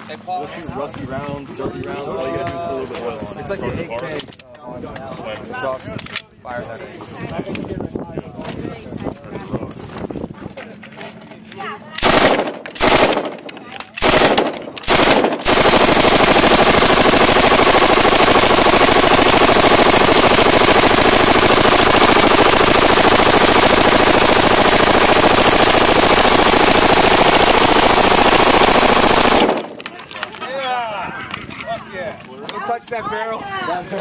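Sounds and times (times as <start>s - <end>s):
machine gun firing bursts: 12.0s - 30.0s.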